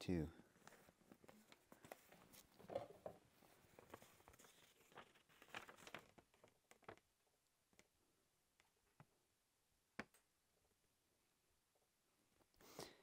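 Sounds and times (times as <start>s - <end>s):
paper rustling: 0.6s - 7.1s.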